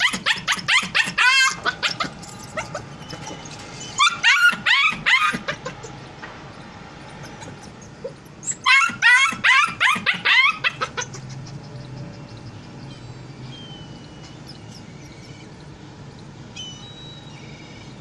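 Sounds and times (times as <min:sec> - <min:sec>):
puppy yipping: 0:00.0 - 0:06.0, 0:07.0 - 0:11.6.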